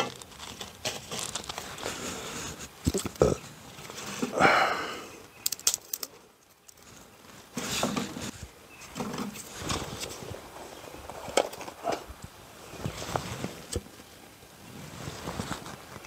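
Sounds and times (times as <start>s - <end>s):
paper rustling: 0.0s - 3.1s
dry twigs clicking: 5.3s - 7.0s.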